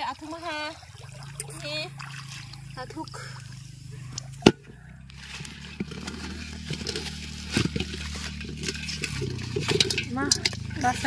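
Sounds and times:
leaves rustling in metal pot: 0:03.6 - 0:11.0.

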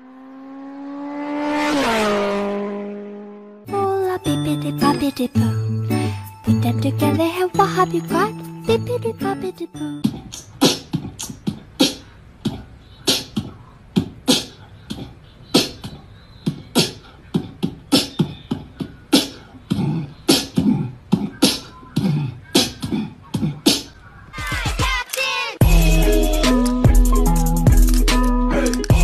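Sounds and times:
beatboxing: 0:10.0 - 0:29.0.

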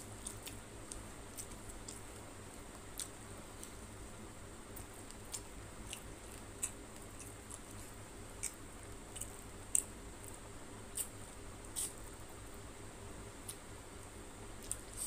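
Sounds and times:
faint steady hum: 0:00.0 - 0:15.0
wet chewing clicks and smacks: 0:00.2 - 0:02.2, 0:02.8 - 0:03.8, 0:04.8 - 0:11.1.

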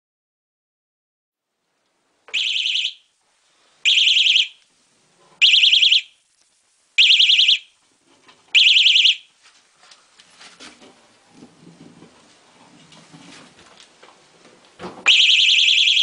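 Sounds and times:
bicycle alarm warbling tone: 0:02.3 - 0:03.1, 0:03.9 - 0:04.6, 0:05.4 - 0:06.2, 0:07.0 - 0:07.7, 0:08.6 - 0:09.3, 0:15.1 - 0:16.0.

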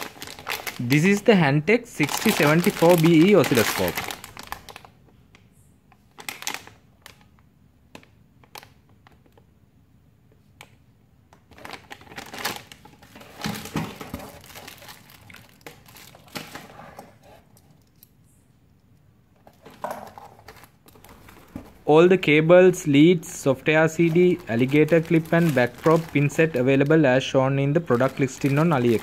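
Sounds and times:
plastic bags crinkling: 0:00.0 - 0:01.3, 0:01.9 - 0:04.9, 0:06.1 - 0:07.3, 0:11.5 - 0:16.8, 0:23.2 - 0:29.0.

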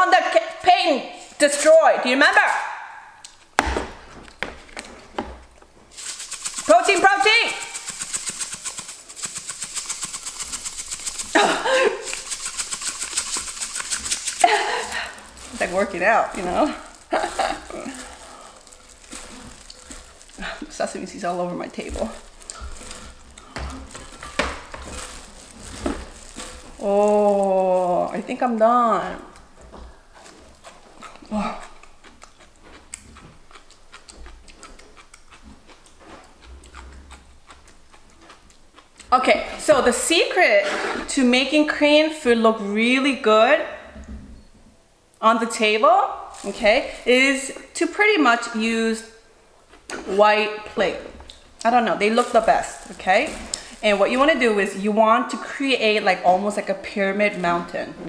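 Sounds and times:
chewing crunchy food: 0:05.9 - 0:28.3, 0:29.2 - 0:39.2, 0:51.1 - 0:54.4
seeds rattling in shaker jar: 0:05.9 - 0:29.3, 0:46.3 - 0:47.4, 0:51.6 - 0:55.0.

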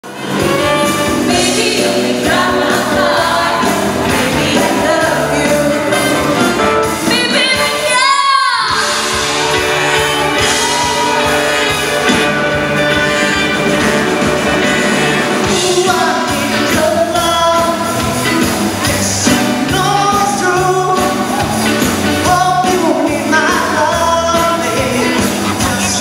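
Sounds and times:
pop-rock band playing: 0:00.0 - 0:26.0
women singing: 0:00.9 - 0:09.0.

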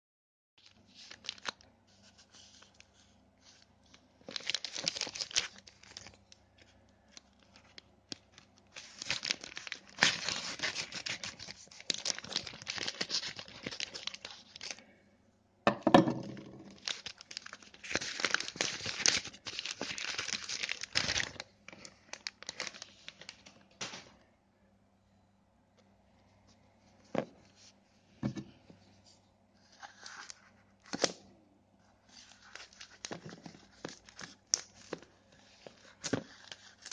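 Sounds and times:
plastic bag tearing and rustling: 0:04.2 - 0:06.2, 0:07.4 - 0:14.8, 0:16.5 - 0:24.0, 0:32.2 - 0:36.9.

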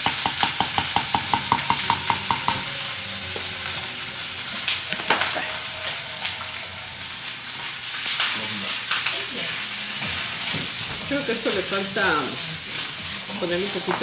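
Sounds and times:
hot food sizzling: 0:00.0 - 0:14.0.

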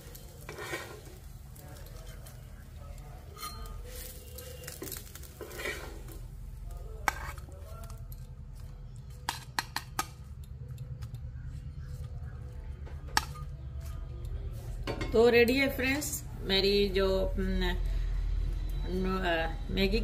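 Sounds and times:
spatula scraping griddle: 0:00.0 - 0:02.5, 0:03.2 - 0:06.4, 0:07.0 - 0:08.0
spatula clinking steel plate: 0:03.2 - 0:06.1
steady low hum: 0:05.2 - 0:20.0.

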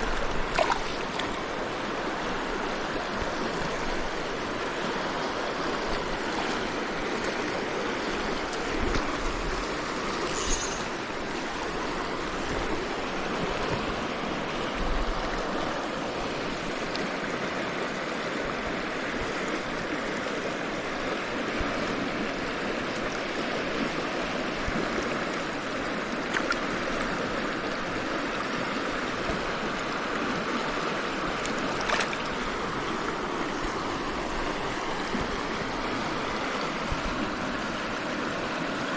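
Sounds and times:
water splashes and knocks: 0:00.0 - 0:01.5, 0:26.3 - 0:27.0, 0:31.4 - 0:32.6
river water rushing: 0:00.0 - 0:38.9.

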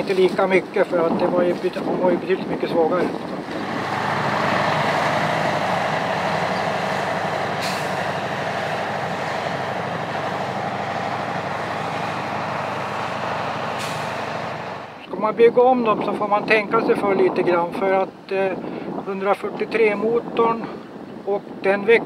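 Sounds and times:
truck engine running steadily: 0:03.2 - 0:15.0
brief hisses: 0:13.8 - 0:14.3.

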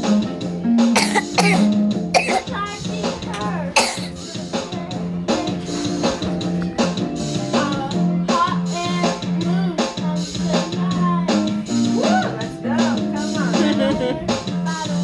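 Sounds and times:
karaoke backing track: 0:00.0 - 0:15.0
person singing: 0:04.2 - 0:15.0.

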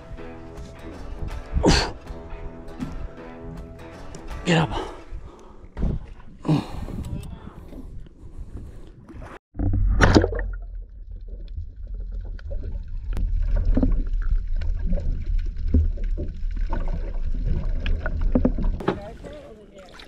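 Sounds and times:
underwater rumble of moving water: 0:09.6 - 0:19.5.

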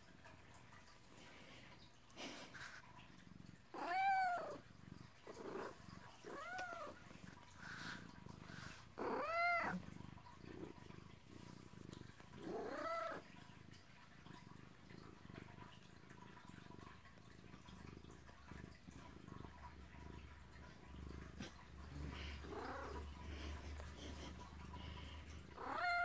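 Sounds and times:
cat purring: 0:00.0 - 0:26.0
cat meowing: 0:03.8 - 0:04.6, 0:09.0 - 0:09.8, 0:25.6 - 0:26.0.

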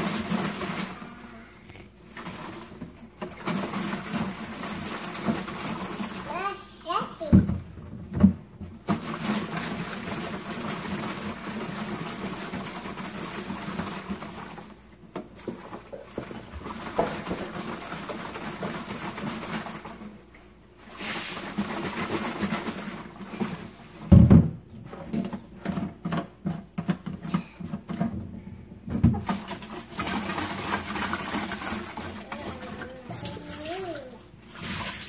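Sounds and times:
liquid sloshing in plastic jar: 0:29.0 - 0:35.0.

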